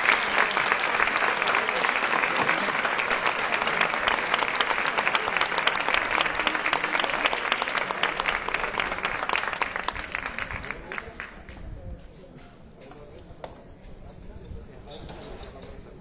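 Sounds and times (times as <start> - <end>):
crowd applauding: 0.0 - 11.6.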